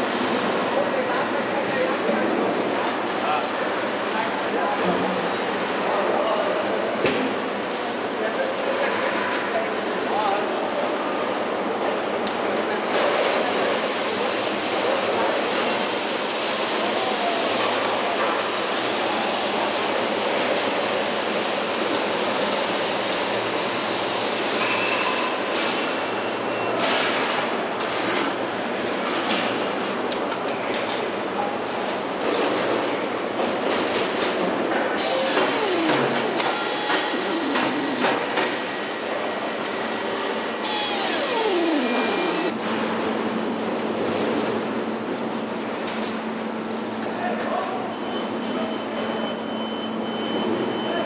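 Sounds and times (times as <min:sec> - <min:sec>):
factory machinery din: 0:34.8 - 0:43.4
high-pitched squeal: 0:40.6 - 0:42.6.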